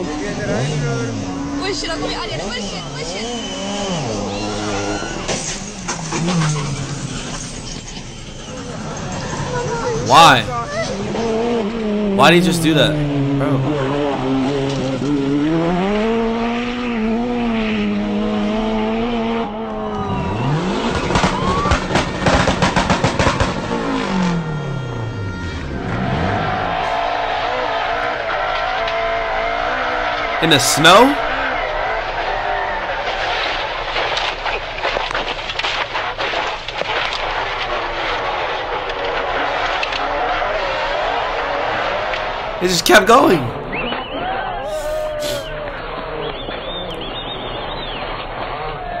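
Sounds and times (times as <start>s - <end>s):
car engine revving: 0.0s - 7.6s, 9.0s - 44.1s
road noise rushing: 0.0s - 43.9s
rally car engine running hard: 10.6s - 12.2s, 12.9s - 30.4s, 45.7s - 49.0s
short sharp cracks: 33.1s - 42.4s.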